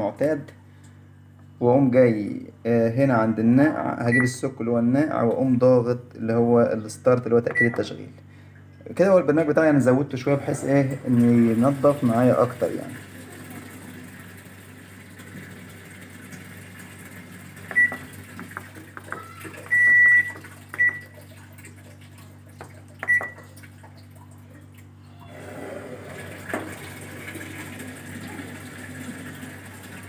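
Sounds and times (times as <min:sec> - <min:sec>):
washing machine beeps: 0:04.0 - 0:04.4, 0:07.5 - 0:07.9, 0:16.4 - 0:18.4, 0:19.1 - 0:21.3, 0:23.0 - 0:23.6.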